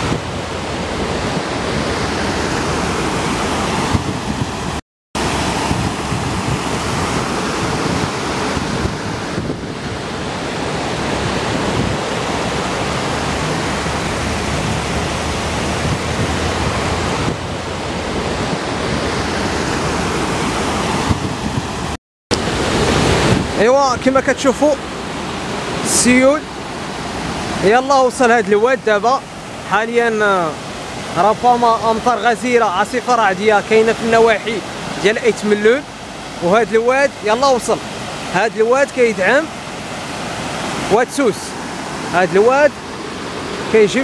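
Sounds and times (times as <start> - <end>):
wind buffeting microphone: 0.0 - 25.8
water rushing over stones: 0.0 - 44.0.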